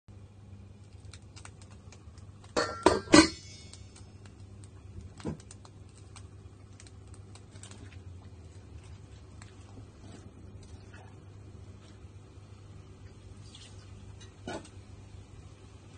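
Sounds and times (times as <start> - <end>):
steady low hum: 0.1 - 15.9
metal lid clanking: 2.6 - 3.8.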